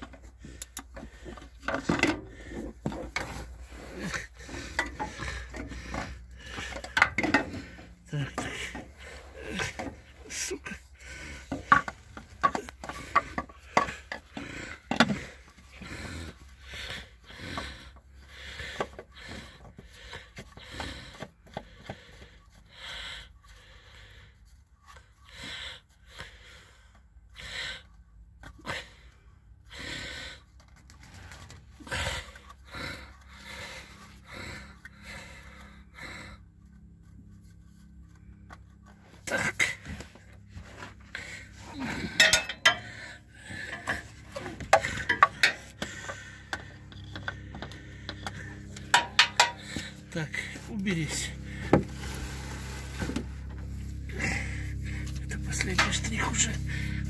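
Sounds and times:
wrench clinking on metal: 42.2s - 42.9s.

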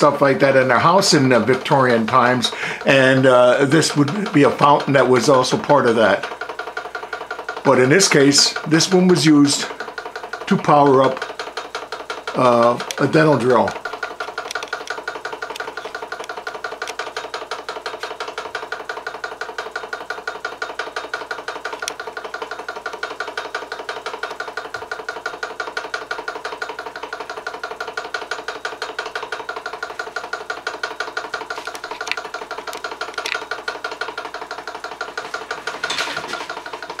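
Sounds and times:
hot air engine running: 2.5s - 3.2s.

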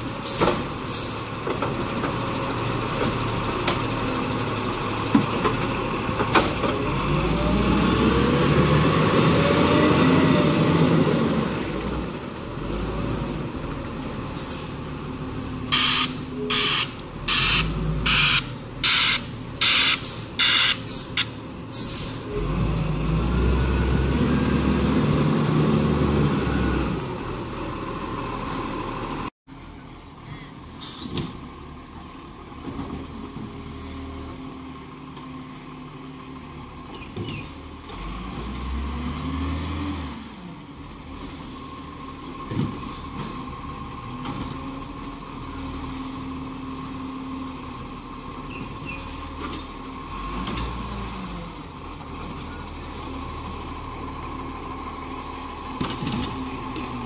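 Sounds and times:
truck engine revving: 1.9s - 21.3s, 22.2s - 28.2s
reversing alarm beeping: 15.7s - 21.3s.

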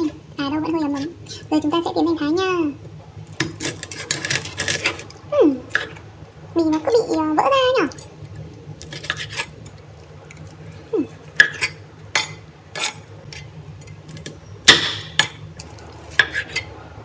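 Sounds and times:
knife cutting crackling on board: 8.8s - 9.5s, 11.3s - 13.5s.

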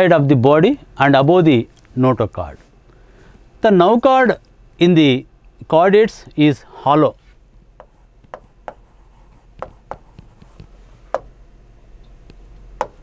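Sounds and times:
stylus tapping and scratching: 7.8s - 11.3s.

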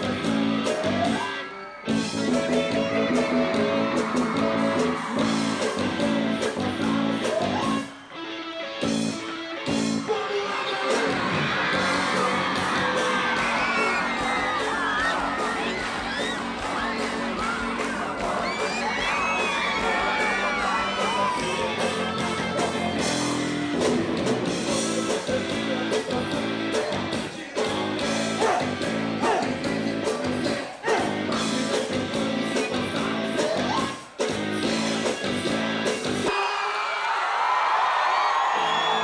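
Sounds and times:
rock band playing live: 0.0s - 36.4s
crowd cheering and whooping: 0.6s - 6.5s, 10.1s - 23.4s, 36.2s - 39.0s
man singing: 5.6s - 7.9s, 10.0s - 14.7s, 16.5s - 23.0s, 24.5s - 34.0s.

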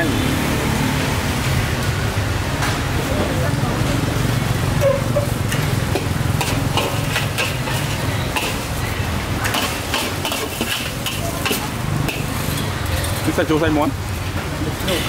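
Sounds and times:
utensil clattering in pan: 5.5s - 8.6s, 9.5s - 12.4s.

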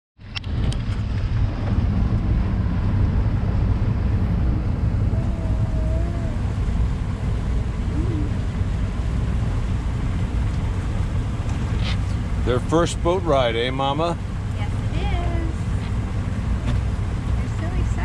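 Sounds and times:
motorboat engine rumbling: 0.2s - 18.0s.

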